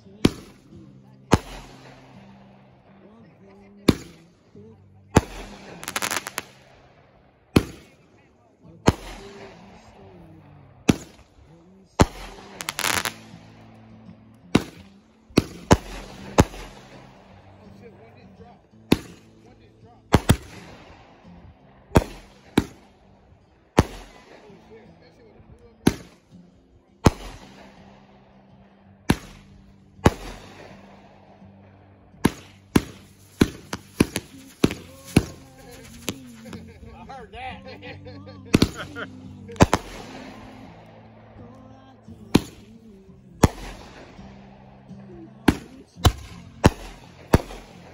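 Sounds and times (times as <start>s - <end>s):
fireworks bangs: 5.2s - 6.8s, 7.5s - 8.0s, 10.8s - 11.3s, 12.0s - 13.4s, 14.5s - 17.7s, 18.8s - 19.4s, 20.1s - 21.0s, 21.9s - 22.9s, 23.8s - 24.4s, 29.1s - 30.9s, 32.2s - 37.0s, 38.5s - 41.5s, 42.2s - 42.8s, 43.4s - 44.2s, 45.5s - 47.9s
fireworks crackling: 5.2s - 6.8s, 7.5s - 8.0s, 10.8s - 17.8s, 18.7s - 19.5s, 20.1s - 20.9s, 21.9s - 22.9s, 23.7s - 24.6s, 27.0s - 27.8s, 29.1s - 30.9s, 31.5s - 37.5s, 38.5s - 44.4s, 45.3s - 47.9s.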